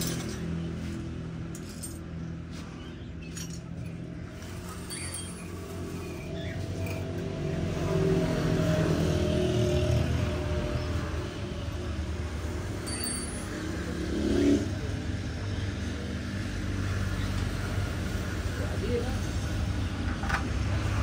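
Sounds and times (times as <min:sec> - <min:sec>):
vehicle engine passing: 0:05.7 - 0:19.9.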